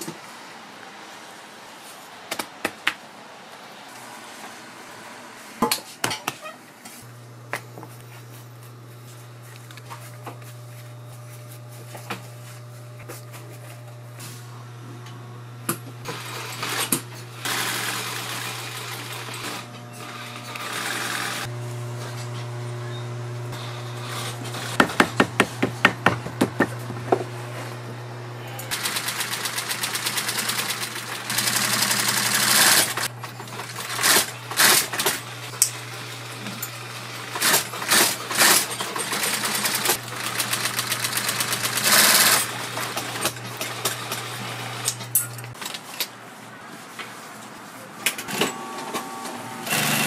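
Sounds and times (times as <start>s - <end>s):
sewing machine motor humming: 16.0s - 24.8s, 28.5s - 45.0s, 48.3s - 50.0s.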